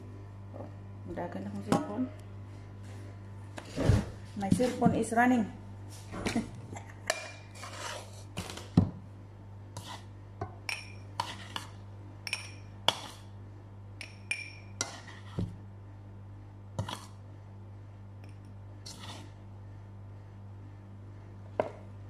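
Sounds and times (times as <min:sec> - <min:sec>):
metal spoon clinking in glass: 0:10.7 - 0:11.0, 0:12.3 - 0:12.7, 0:14.0 - 0:14.7.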